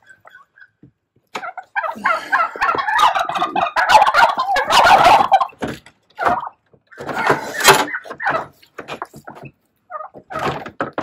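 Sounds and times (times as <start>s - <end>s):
turkeys gobbling: 0.0s - 11.0s
wooden knocks of crate panels: 10.1s - 11.0s.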